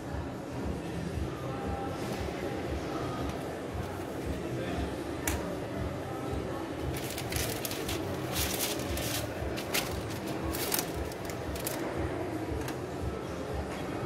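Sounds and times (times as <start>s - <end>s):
paper rustling and crinkling: 6.8s - 11.9s.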